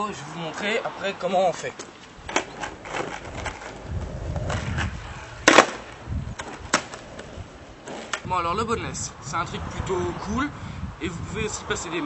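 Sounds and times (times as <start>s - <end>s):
skateboard wheels rolling on asphalt: 0.0s - 12.0s
skateboard clacking on ground: 1.7s - 8.3s.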